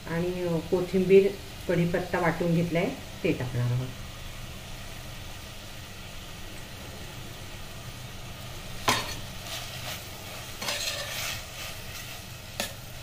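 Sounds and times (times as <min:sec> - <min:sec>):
spoon scraping sizzling vegetables: 0:08.6 - 0:13.0.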